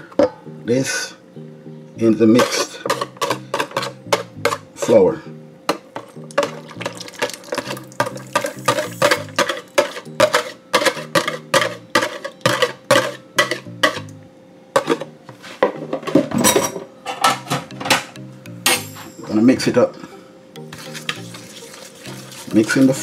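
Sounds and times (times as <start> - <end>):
background music: 0.0 - 23.0
whisk clinking against bowl: 7.2 - 14.0.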